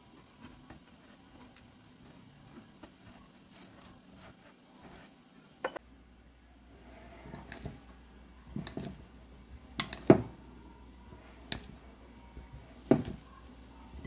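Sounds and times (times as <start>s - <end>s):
spoon clinking against glass bowl: 9.8s - 10.2s.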